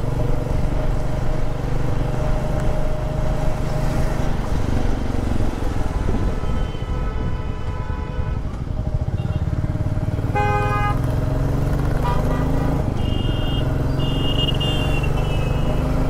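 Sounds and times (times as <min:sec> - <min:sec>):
vehicle horn honking: 0:10.3 - 0:11.0, 0:12.0 - 0:15.8.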